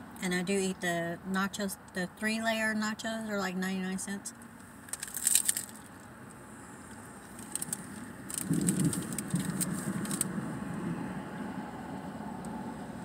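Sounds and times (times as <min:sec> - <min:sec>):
vehicle engine rumble: 0:00.0 - 0:13.0
paper wrapper crinkling: 0:04.8 - 0:06.0, 0:07.2 - 0:10.3.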